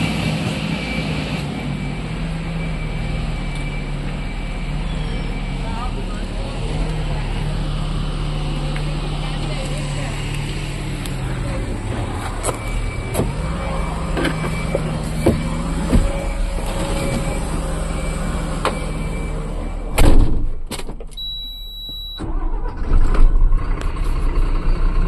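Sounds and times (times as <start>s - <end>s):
diesel engine idling: 0.0s - 20.0s, 22.2s - 25.0s
loud bang: 19.9s - 20.8s.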